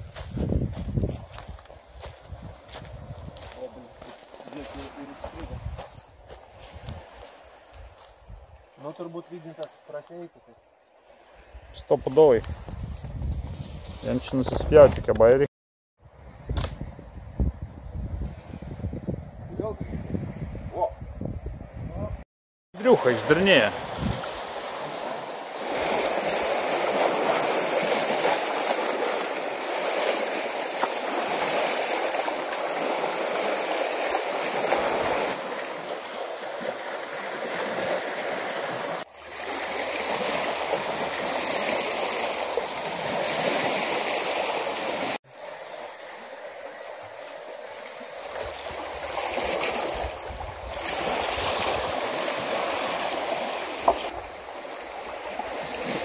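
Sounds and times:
waves lapping on rocky shore: 22.8 - 56.0.

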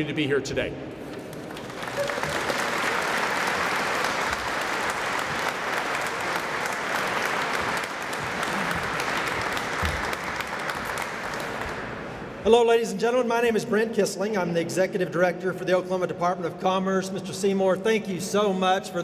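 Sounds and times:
audience applauding: 1.3 - 12.1.

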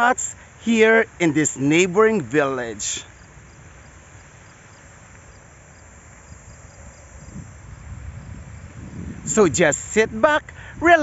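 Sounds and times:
faint insect chirps: 0.0 - 10.0
steady low hiss: 0.0 - 11.0
wind rumbling on microphone: 3.0 - 11.0.

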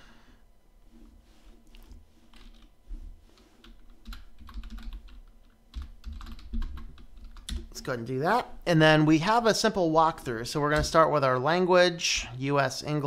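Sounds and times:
computer keyboard typing: 2.3 - 2.7, 3.6 - 7.8.

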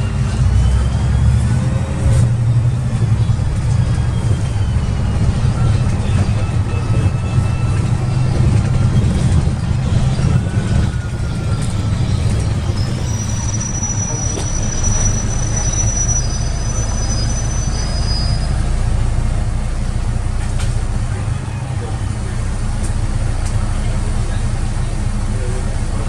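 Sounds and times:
high-pitched squeal: 0.0 - 19.6
bus engine drone: 0.0 - 26.0.

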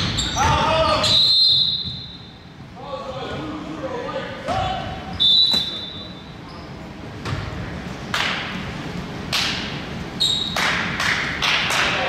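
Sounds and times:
basketball bouncing on gym floor: 0.0 - 1.2, 7.2 - 7.6.

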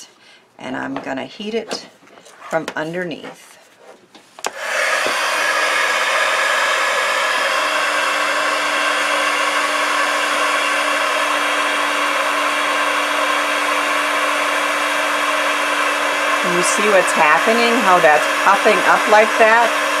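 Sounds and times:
heat gun blowing air: 4.4 - 20.0
heat gun hum: 4.4 - 20.0.

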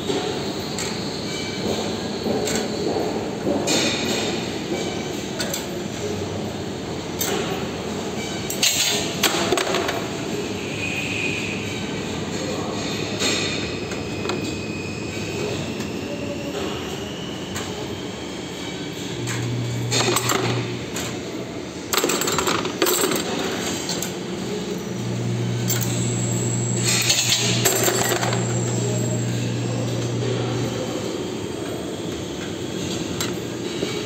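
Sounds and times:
wire bending machine motor hum: 17.6 - 34.0.

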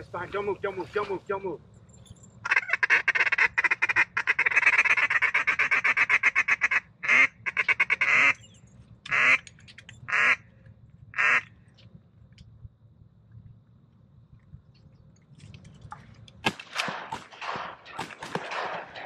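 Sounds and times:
duck call chattering: 2.4 - 8.4, 9.1 - 9.5, 10.1 - 10.4, 11.2 - 11.5
duck call quacks: 2.5 - 8.4, 9.1 - 9.4, 10.1 - 10.4, 11.2 - 11.5.

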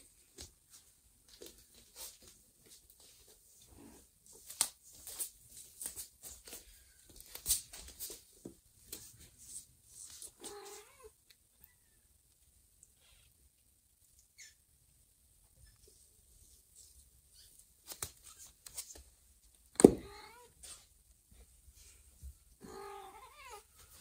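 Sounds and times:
cat meow: 10.4 - 12.1, 20.0 - 20.6, 22.6 - 23.7.

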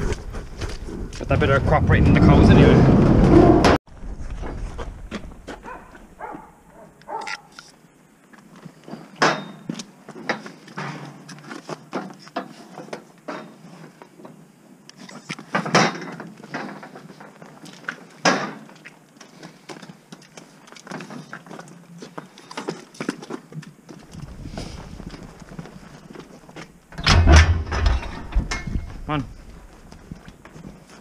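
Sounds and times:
hoof steps on concrete: 0.0 - 1.3, 16.4 - 27.0, 28.3 - 31.0
cattle clanking against steel rails: 9.0 - 11.3, 26.9 - 29.1.

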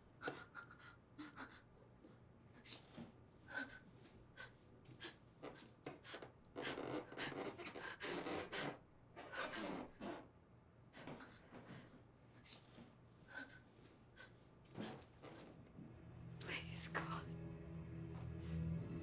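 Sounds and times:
woman breathing heavily and gasping: 0.2 - 9.7, 10.9 - 15.6.

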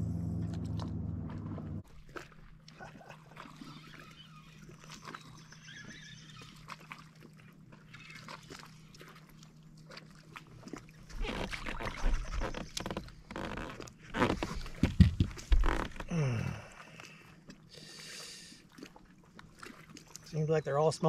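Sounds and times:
steady low hum: 0.0 - 3.6.

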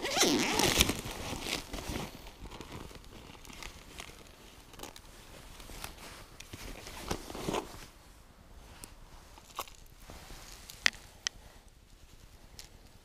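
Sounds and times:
fabric pouch being opened: 0.0 - 5.0.

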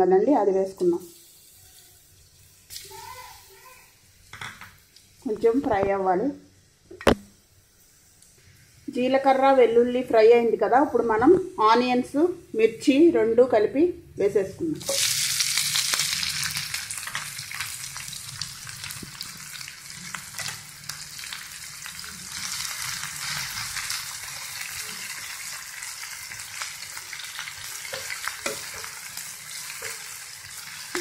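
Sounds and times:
onions sizzling in hot oil: 0.0 - 13.1, 14.6 - 31.0
spoon scraping pan: 27.6 - 31.0.

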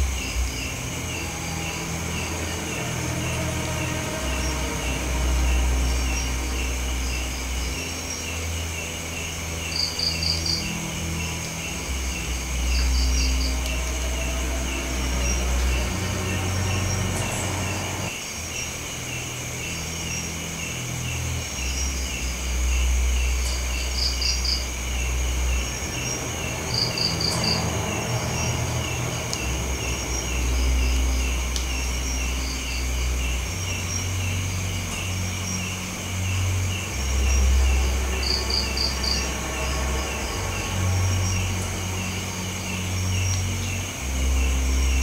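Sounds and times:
low rumble: 0.0 - 19.7
crickets chirping: 0.0 - 45.0.

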